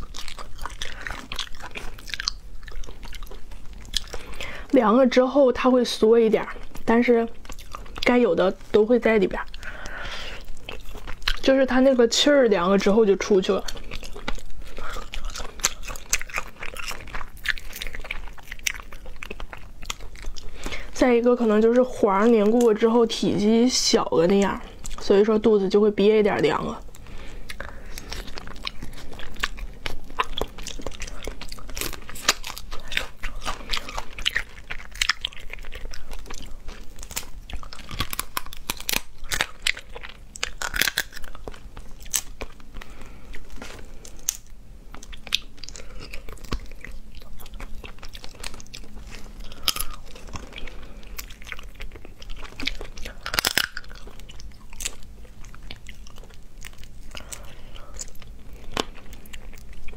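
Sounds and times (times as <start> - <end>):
chewing: 0.0 - 5.1, 6.0 - 22.9, 24.3 - 25.1, 26.7 - 59.9
shellfish shells cracking: 27.5 - 42.6, 47.6 - 55.1.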